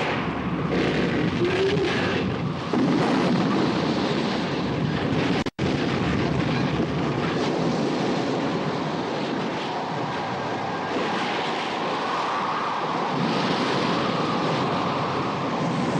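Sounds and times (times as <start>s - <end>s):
waves breaking: 0.0s - 15.9s
wind rushing: 0.0s - 15.9s.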